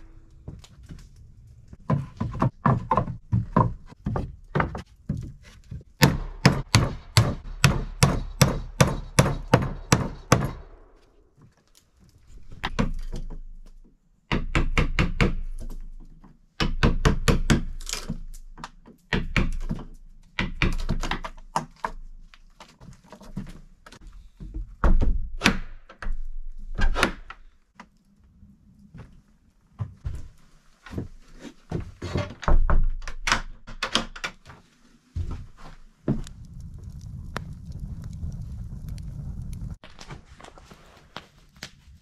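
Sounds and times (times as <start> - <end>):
wooden knocks and thuds: 1.8 - 10.6, 22.7 - 27.0, 29.8 - 34.4
hammer driving nails into wood: 6.0 - 10.8, 14.3 - 15.8, 16.6 - 18.3.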